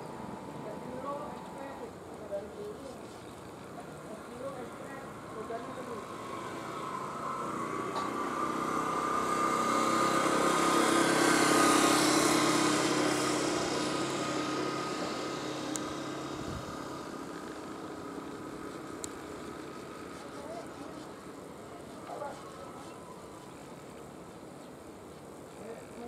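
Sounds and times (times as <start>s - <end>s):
vehicle engine passing by: 5.2s - 23.4s
faint ticks: 19.0s - 20.6s.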